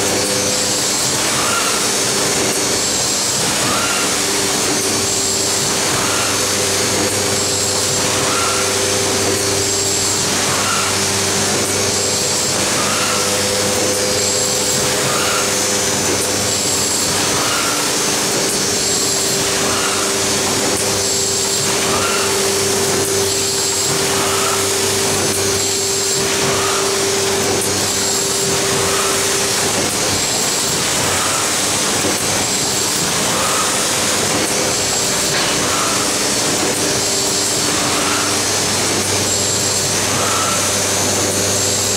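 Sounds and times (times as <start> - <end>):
machine whirring and hissing: 0.0 - 41.9
steady hum: 0.0 - 41.9.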